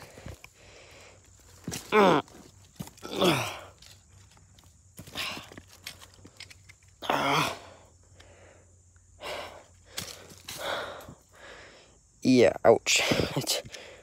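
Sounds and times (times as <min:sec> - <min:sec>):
wheezy breathing: 0:00.0 - 0:01.5, 0:07.1 - 0:12.1
man groaning: 0:01.9 - 0:02.3, 0:03.0 - 0:03.7, 0:07.0 - 0:07.8.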